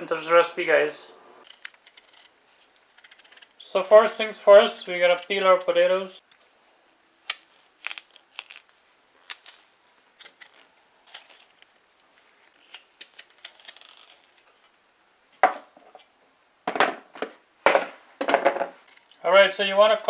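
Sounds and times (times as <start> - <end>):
knife scraping potato skin: 1.4 - 6.6, 7.2 - 15.4, 18.8 - 20.0.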